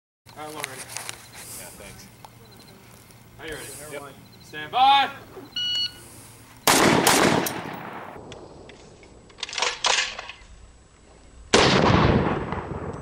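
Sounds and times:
rifle shots with echo: 6.6s - 8.4s, 11.5s - 13.0s.

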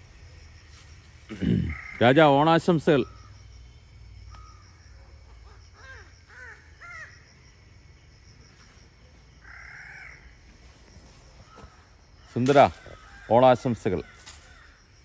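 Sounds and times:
crows cawing: 1.3s - 2.4s, 4.3s - 7.3s, 9.4s - 10.6s, 11.4s - 14.9s.

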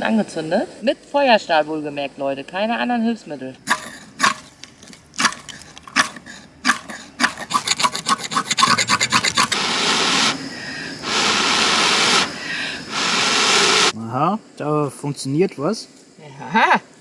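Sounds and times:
fire steel scraping: 3.7s - 14.0s.

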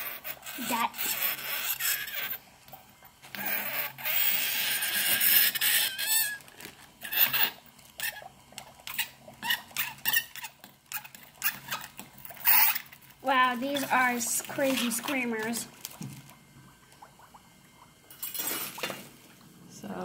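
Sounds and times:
metal spoon squealing on dry ice: 0.0s - 2.4s, 3.3s - 13.0s.

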